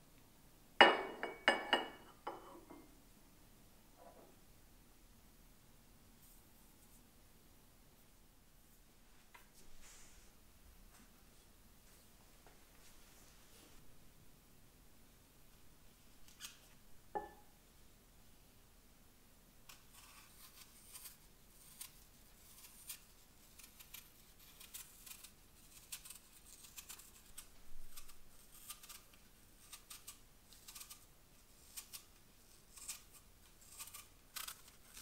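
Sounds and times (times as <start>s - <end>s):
knife scraping apple skin: 19.7s - 35.0s.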